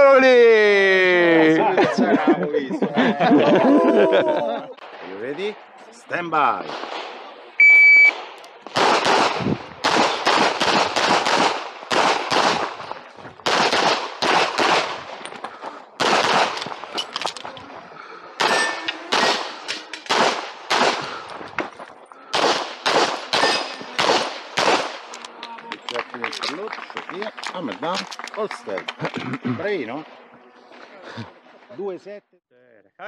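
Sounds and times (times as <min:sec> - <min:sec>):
pistol shots: 0:08.1 - 0:12.8, 0:13.4 - 0:15.2, 0:16.0 - 0:17.0, 0:18.4 - 0:21.3, 0:22.3 - 0:25.1.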